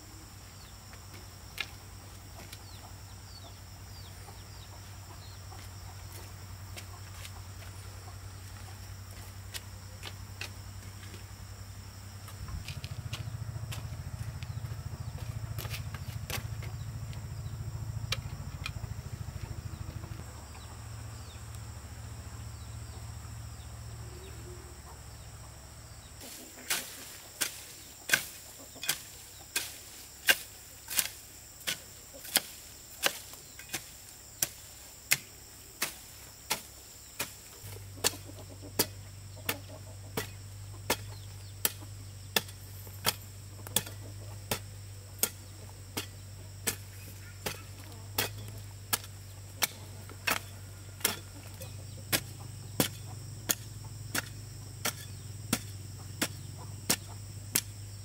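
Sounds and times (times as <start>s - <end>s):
steady low hum: 0.0s - 58.0s
hoe chopping into dry soil: 26.2s - 58.0s.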